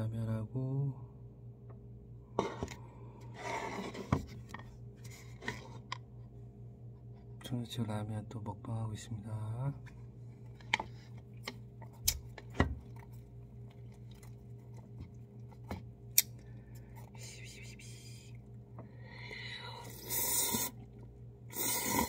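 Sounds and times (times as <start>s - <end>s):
steady low hum: 0.0s - 22.0s
slurp of noodles: 19.8s - 22.0s.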